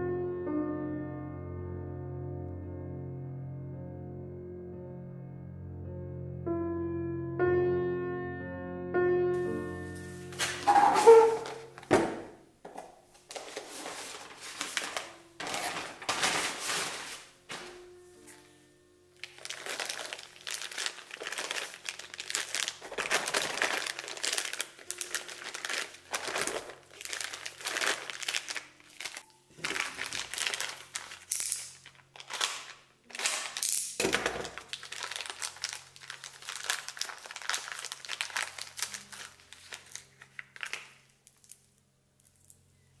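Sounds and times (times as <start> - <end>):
plastic bags crinkling: 9.9 - 12.1, 12.7 - 17.9, 19.2 - 42.6.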